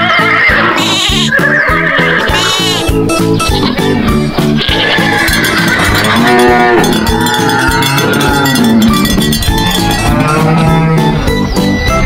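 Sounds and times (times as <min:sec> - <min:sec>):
background music: 0:00.0 - 0:12.0
cow mooing: 0:03.6 - 0:11.2.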